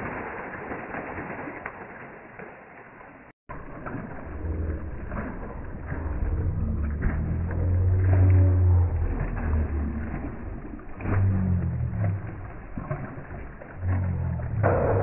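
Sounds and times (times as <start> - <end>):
fish splashing in water: 0.0 - 15.0
low uneven rumble: 3.5 - 15.0.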